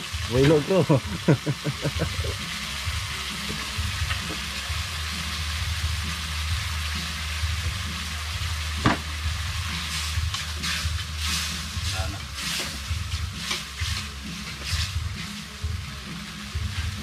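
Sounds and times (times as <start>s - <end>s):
food sizzling in a pan: 0.0s - 17.0s.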